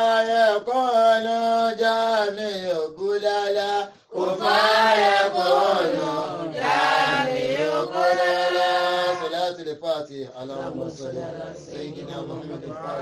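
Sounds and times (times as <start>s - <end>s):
man chanting: 0.0s - 4.0s, 8.7s - 11.0s.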